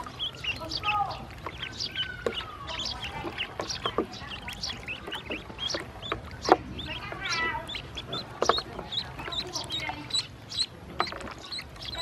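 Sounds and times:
ducklings peeping: 0:00.0 - 0:12.0.

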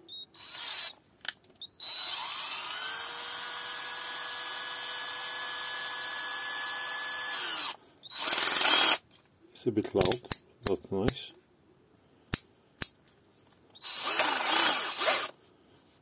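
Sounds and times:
cordless drill motor whine: 0:00.1 - 0:01.0, 0:01.6 - 0:09.0, 0:13.8 - 0:15.4
drill click: 0:13.8 - 0:15.4.

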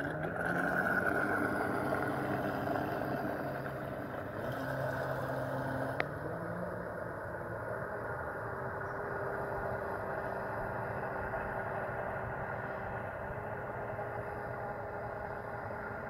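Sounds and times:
water rushing: 0:00.0 - 0:06.0
electric motor humming: 0:00.0 - 0:06.9.

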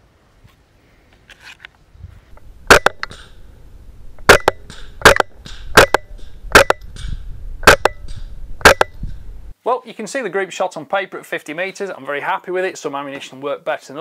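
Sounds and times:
suppressed rifle shots: 0:02.7 - 0:03.4, 0:04.2 - 0:06.8.

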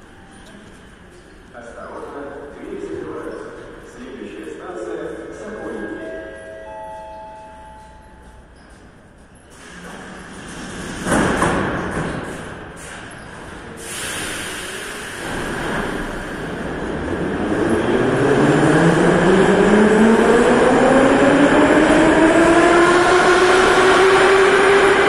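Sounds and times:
train doors banging shut: 0:09.5 - 0:13.6.

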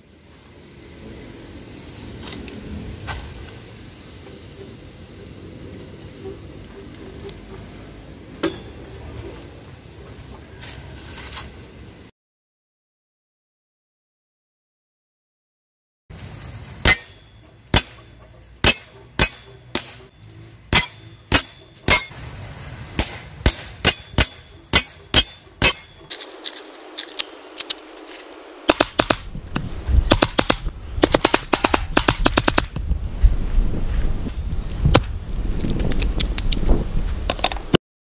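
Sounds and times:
steel plates pinging: 0:08.4 - 0:09.0, 0:16.8 - 0:22.1, 0:23.5 - 0:27.2
airsoft pistol shots: 0:28.7 - 0:29.3, 0:30.1 - 0:32.8.

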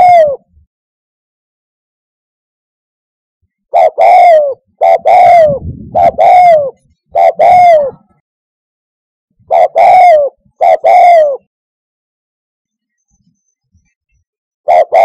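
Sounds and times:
dove cooing: 0:00.0 - 0:00.5, 0:03.7 - 0:08.2, 0:09.4 - 0:11.5, 0:14.7 - 0:15.0.

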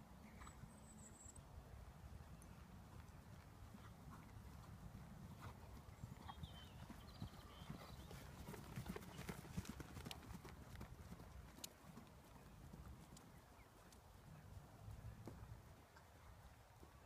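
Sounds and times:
horse hoofbeats on sand: 0:02.9 - 0:13.2.

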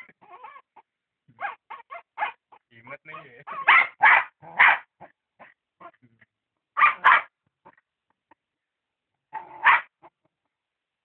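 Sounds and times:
dog barking: 0:01.4 - 0:05.6, 0:06.8 - 0:07.3, 0:09.3 - 0:10.0.

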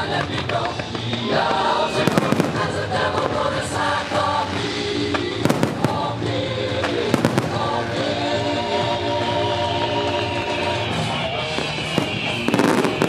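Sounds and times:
music: 0:00.0 - 0:13.0
fireworks cracks: 0:00.2 - 0:08.4, 0:11.5 - 0:13.0
fireworks bangs: 0:00.8 - 0:08.2, 0:11.5 - 0:13.0.

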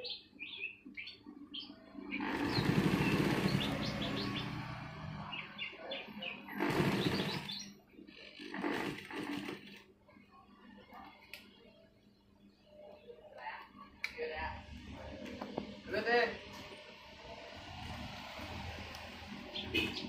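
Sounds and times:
small birds chirping: 0:00.0 - 0:09.4, 0:19.3 - 0:20.0
sewing machine stitching: 0:02.1 - 0:04.7, 0:06.5 - 0:09.9.

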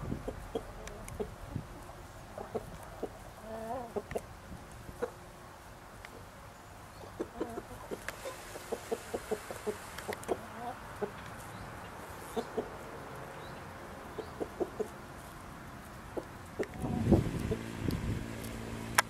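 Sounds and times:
chickens clucking: 0:00.0 - 0:05.2, 0:06.9 - 0:18.6.

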